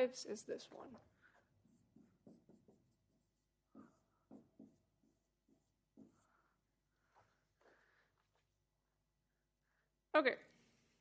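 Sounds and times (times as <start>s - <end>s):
marker pen writing on whiteboard: 0.6s - 8.7s.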